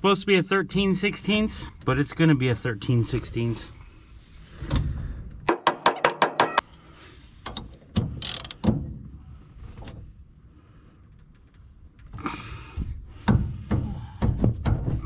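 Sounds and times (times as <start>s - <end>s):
ratchet wrench clicking: 8.2s - 8.6s.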